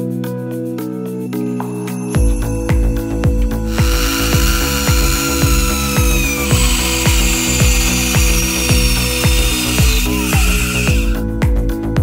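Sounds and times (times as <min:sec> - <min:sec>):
music with fast beat: 0:01.4 - 0:12.0
band saw whining cutting steel: 0:01.9 - 0:11.2.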